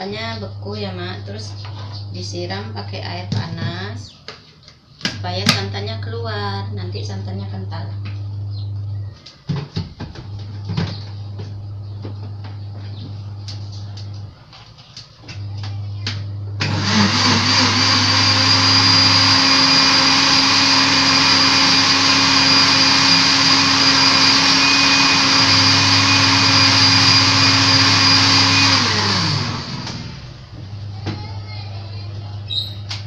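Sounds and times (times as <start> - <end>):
electric blender whining: 15.7 - 31.0.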